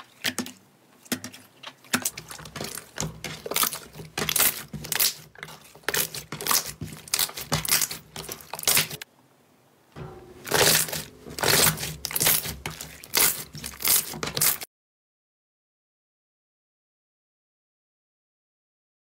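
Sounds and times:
slime crackling and popping: 0:02.1 - 0:05.2, 0:05.9 - 0:09.0, 0:10.5 - 0:14.6.

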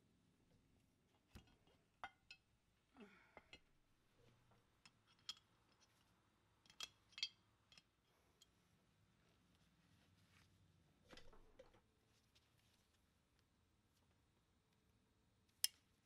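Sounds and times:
metal parts clicking and tapping: 0:04.8 - 0:06.0, 0:06.6 - 0:08.5.

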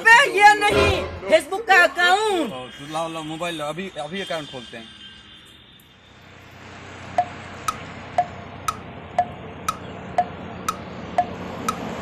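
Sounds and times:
chiming clock ticks: 0:07.2 - 0:11.9.

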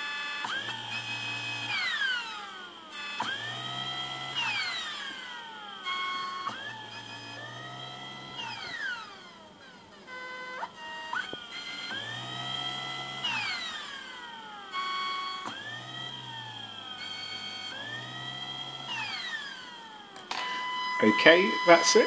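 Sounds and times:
electric motor whine: 0:00.0 - 0:22.0
steady high tone: 0:20.3 - 0:22.0.

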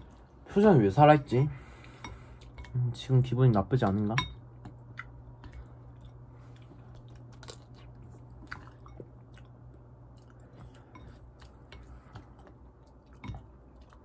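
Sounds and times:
faint low hum: 0:00.0 - 0:14.0
person chewing: 0:04.6 - 0:14.0.

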